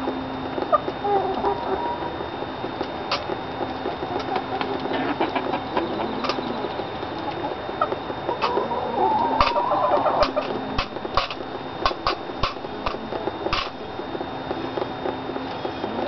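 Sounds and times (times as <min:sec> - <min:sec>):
hens clucking: 0:00.6 - 0:02.4, 0:03.1 - 0:13.8.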